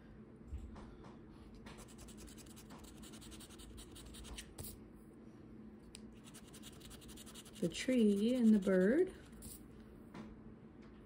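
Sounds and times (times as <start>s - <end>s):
scratching a lottery ticket: 1.8s - 4.4s, 6.2s - 9.6s.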